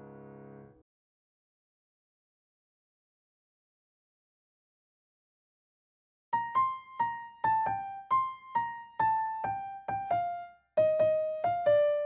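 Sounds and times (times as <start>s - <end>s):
solo piano melody: 0.0s - 0.7s, 6.4s - 12.0s.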